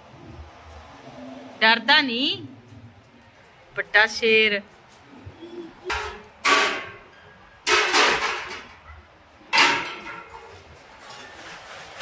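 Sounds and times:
metal poles clanking: 0:05.8 - 0:12.0.

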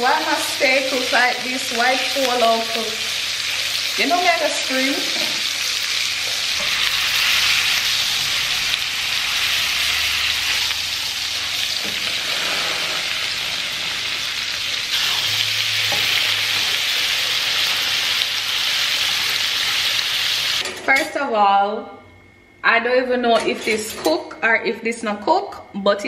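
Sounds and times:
steaks sizzling in butter: 0:00.0 - 0:20.6.

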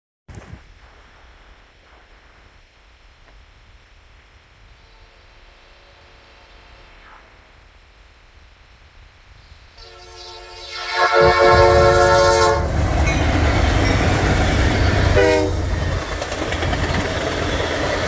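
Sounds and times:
low steady rumble and hiss: 0:00.6 - 0:09.8
distant train horn: 0:04.7 - 0:07.2, 0:09.8 - 0:15.9.

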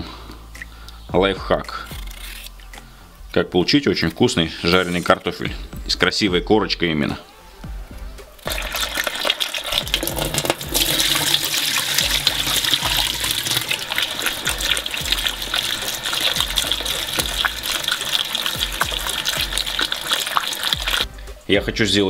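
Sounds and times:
tap water running into bowl: 0:08.4 - 0:21.1.

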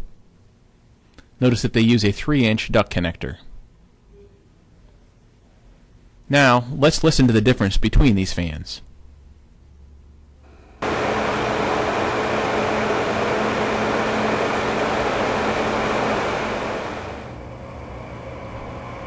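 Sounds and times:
quiet fan whirring: 0:00.0 - 0:19.0
loud exhaust fan whooshing: 0:10.4 - 0:19.0.

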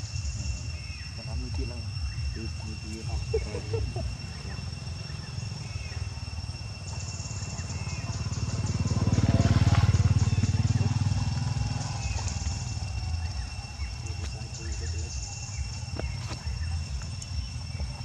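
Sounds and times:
motorcycle engine passing by: 0:04.2 - 0:18.0.

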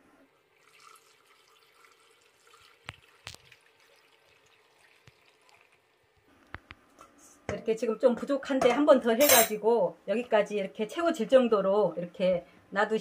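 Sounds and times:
liquid trickling into jar: 0:00.5 - 0:06.1.

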